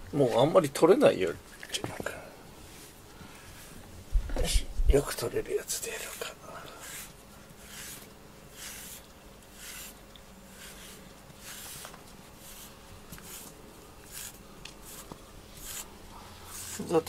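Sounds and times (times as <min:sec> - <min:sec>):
brush stroking fur: 0:02.6 - 0:03.9, 0:05.7 - 0:17.0.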